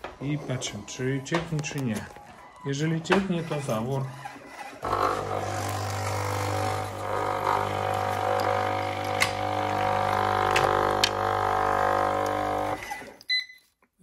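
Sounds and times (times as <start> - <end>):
water pump humming drone: 4.8 - 12.9.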